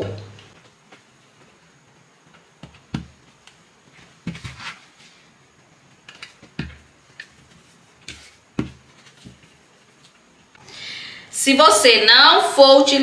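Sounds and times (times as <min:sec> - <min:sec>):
fabric rustling: 0:00.5 - 0:10.5.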